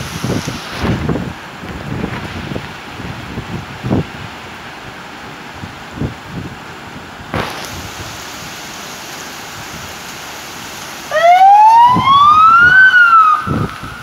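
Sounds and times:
heavy rain and wind: 0.0s - 14.0s
emergency vehicle siren wailing: 11.1s - 14.0s.

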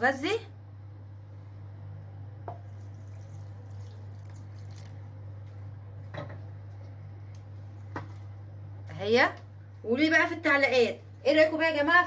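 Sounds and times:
steady low hum: 0.0s - 12.0s
milk pouring and dripping: 2.5s - 5.7s.

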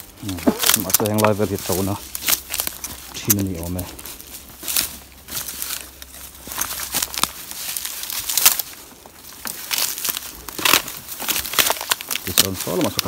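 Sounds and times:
footsteps crunching through dry leaves: 0.0s - 13.0s.

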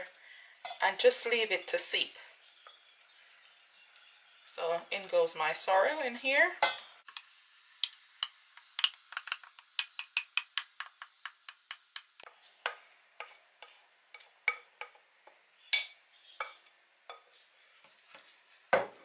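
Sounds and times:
wooden spatula scraping a pan: 17.2s - 19.0s.

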